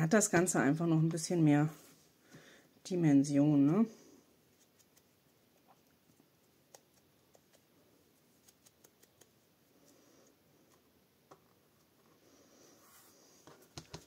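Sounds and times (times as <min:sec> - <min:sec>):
faint paper clicks and taps: 0:13.4 - 0:14.0.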